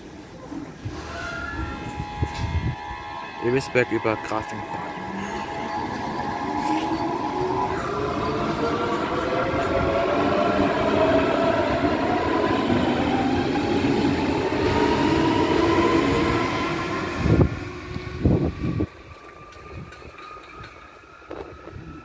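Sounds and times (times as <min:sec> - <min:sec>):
electric train motor whine: 0:00.9 - 0:03.4
train wheels rolling on rails: 0:04.7 - 0:22.0.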